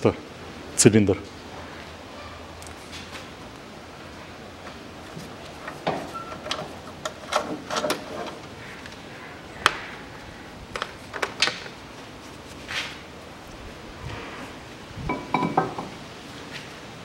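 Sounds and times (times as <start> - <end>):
metal clicks and knocks: 5.6 - 8.5.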